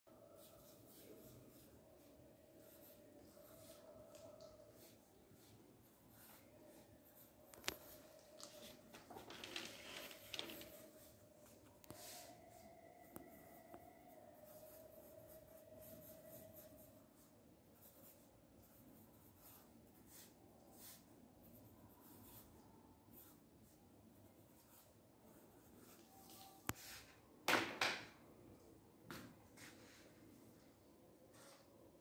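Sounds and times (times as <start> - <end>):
pen scratching on paper: 0.4 - 1.7, 2.6 - 8.1, 17.8 - 26.4.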